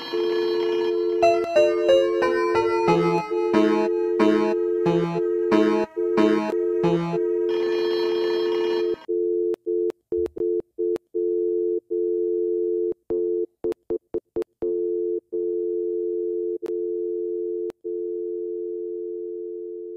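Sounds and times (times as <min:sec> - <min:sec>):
music: 0:00.0 - 0:09.0
glitching electronic tone: 0:00.0 - 0:09.1.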